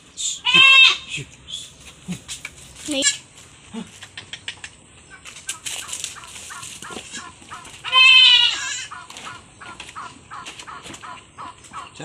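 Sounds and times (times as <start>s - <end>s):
goat bleating: 0.4s - 1.3s, 6.8s - 9.0s.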